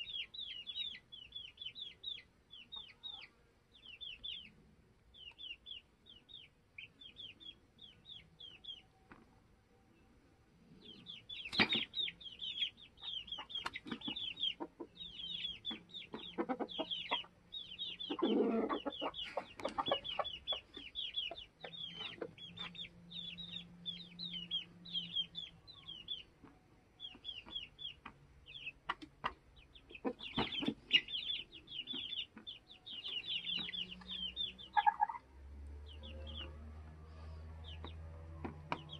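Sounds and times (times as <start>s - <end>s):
chicks peeping: 0.0s - 9.3s, 10.6s - 38.9s
hens clucking: 11.1s - 22.9s, 27.2s - 35.3s.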